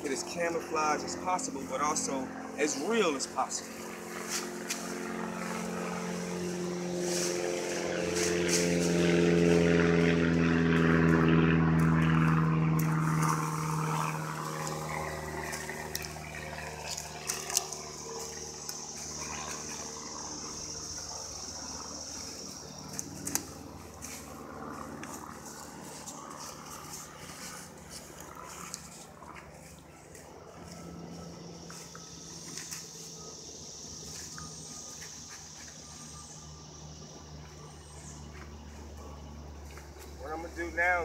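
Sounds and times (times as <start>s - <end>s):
engine drone: 0.0s - 41.0s
leafy branches rustling and snapping: 4.1s - 5.7s, 6.9s - 9.8s, 10.7s - 20.0s, 22.2s - 30.8s, 32.4s - 33.1s.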